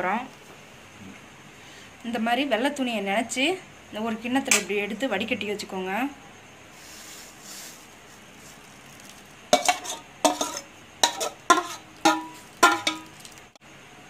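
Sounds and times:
spatula knocking on steel pot: 9.6 - 13.3
spatula scraping pot: 9.6 - 13.3.

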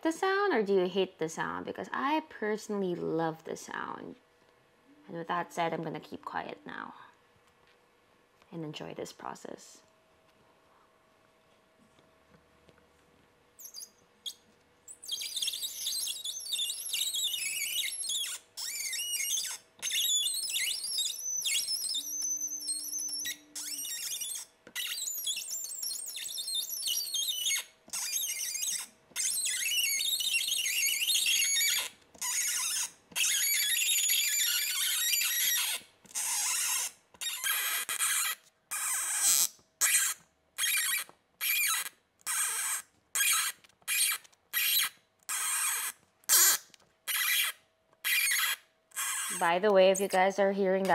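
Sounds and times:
tap cutting threads squeaking: 13.6 - 50.9.

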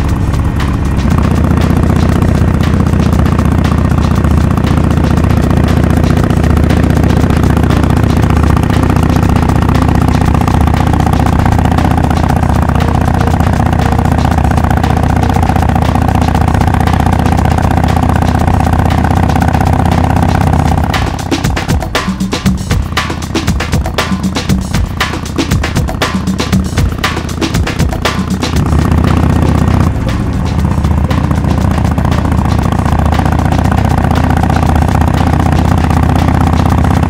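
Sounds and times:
motorcycle engine cruising: 0.0 - 37.0.

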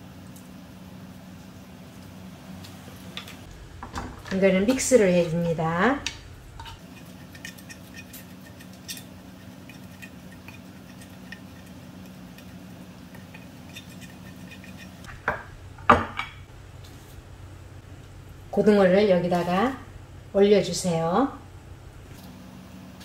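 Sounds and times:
steady low hum: 0.0 - 23.0
spatula scraping ceramic tray: 6.6 - 15.1.

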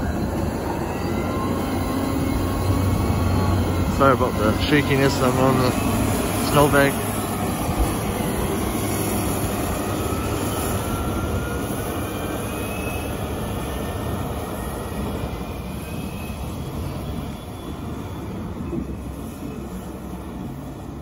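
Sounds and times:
wheel loader diesel engine rumbling: 0.0 - 12.3.

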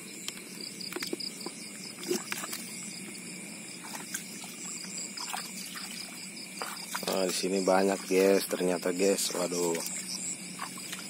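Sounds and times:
crickets and insects trilling: 0.0 - 11.0
shallow water splashing: 3.7 - 8.6.

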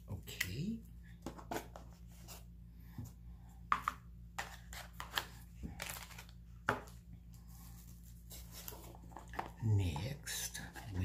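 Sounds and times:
hands handling jewelry packaging: 4.8 - 6.4.

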